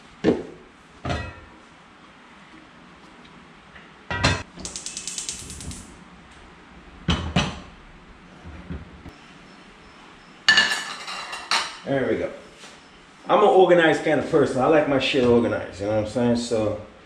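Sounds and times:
gas stove igniter clicking: 4.6 - 5.9.

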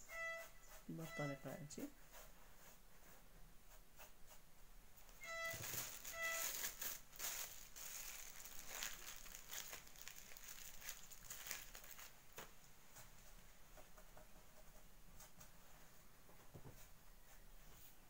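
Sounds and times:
short squeaky tones: 0.0 - 1.5, 5.2 - 6.8
plastic bag crinkling: 5.1 - 12.5.

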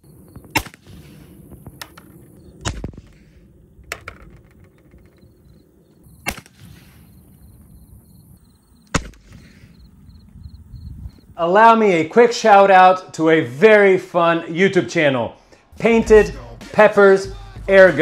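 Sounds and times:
air pistol shots: 0.4 - 3.5, 6.1 - 7.3, 8.9 - 9.8.

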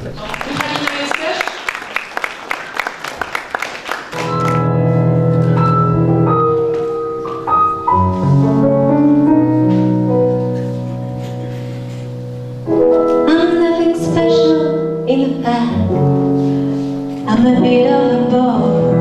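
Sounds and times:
applause: 0.0 - 4.7
keyboard chords and melody: 4.2 - 19.0.

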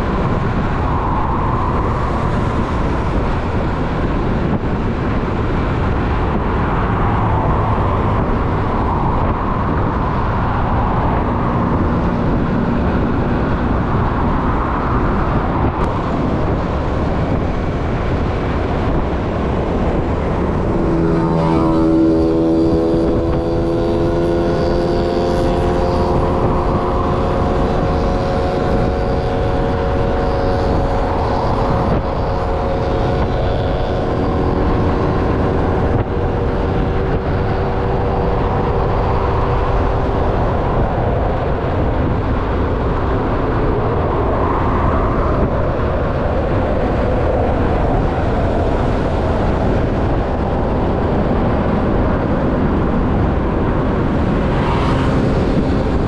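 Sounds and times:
road noise: 0.0 - 56.0
wind buffeting microphone: 0.0 - 56.0
scooter engine: 16.0 - 40.6.

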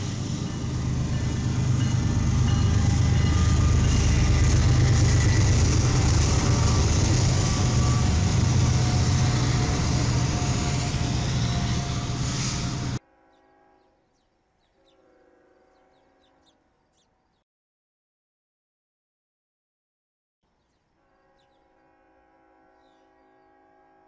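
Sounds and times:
train rumble: 0.0 - 13.0
diesel locomotive engines droning: 0.0 - 13.7.

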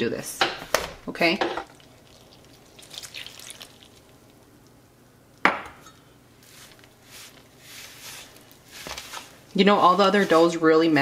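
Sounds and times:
hand mixing dough squishing: 1.1 - 4.7, 6.4 - 11.0
glassware knock: 5.5 - 5.8.

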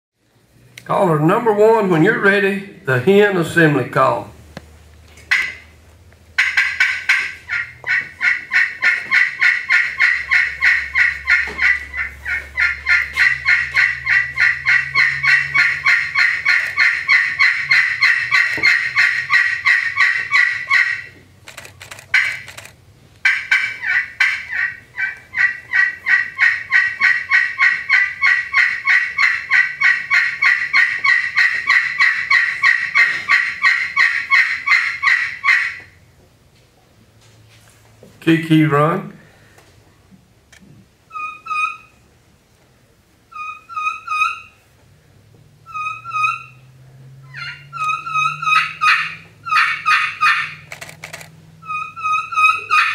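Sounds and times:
turkey call hen yelps: 5.3 - 5.7, 6.4 - 21.2, 22.1 - 22.5, 23.2 - 36.0, 41.1 - 42.0, 43.3 - 44.6, 45.6 - 50.7, 51.6 - 52.9.

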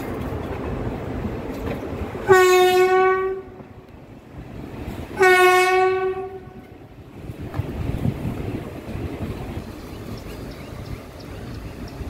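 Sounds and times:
locomotive horn blasts: 2.2 - 3.7, 5.2 - 6.8.

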